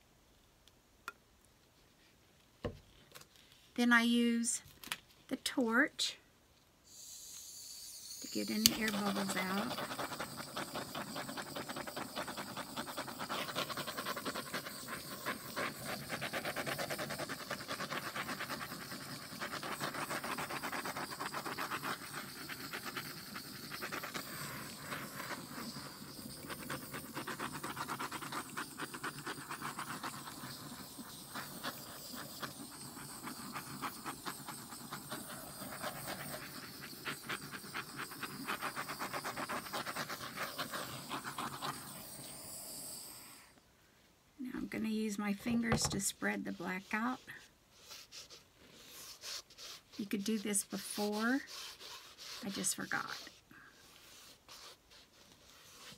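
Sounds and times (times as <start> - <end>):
torch flame hissing: 6.9 - 43.6.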